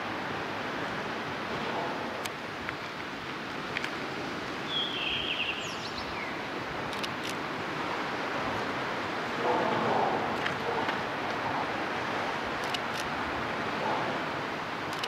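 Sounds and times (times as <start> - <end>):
wind: 0.0 - 15.0
bird call: 4.7 - 6.4.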